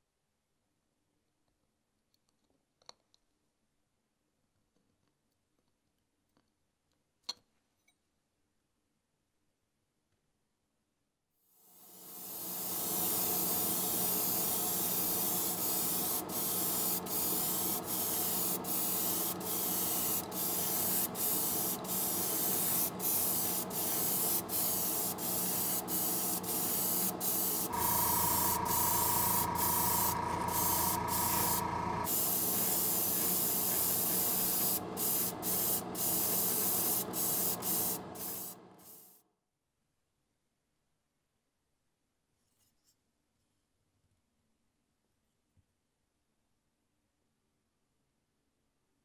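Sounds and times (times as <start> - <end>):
airbrush spraying hiss: 11.9 - 39.1.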